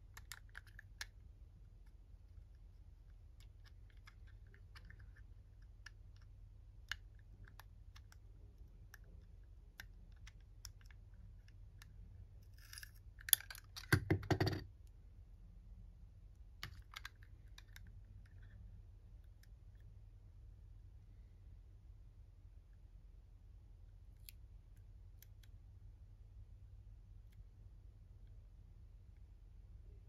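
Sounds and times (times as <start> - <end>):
plastic toy parts clicking: 12.5 - 14.6.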